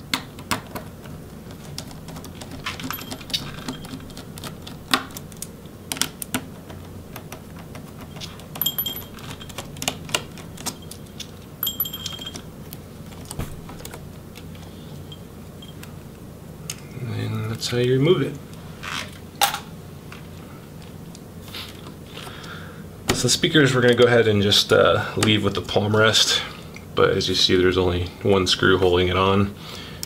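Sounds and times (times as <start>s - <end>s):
short metallic ring: 8.6s - 9.6s, 11.6s - 12.4s.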